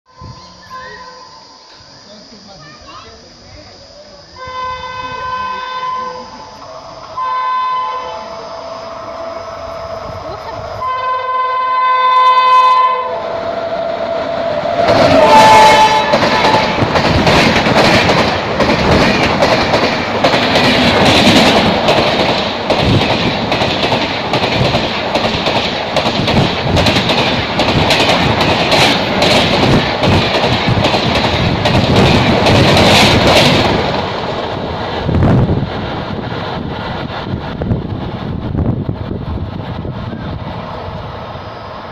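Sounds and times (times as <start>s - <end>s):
train rushing through station: 0.1s - 41.9s
locomotive horn: 4.4s - 16.8s
wheels clicking over rail joints: 16.0s - 35.0s.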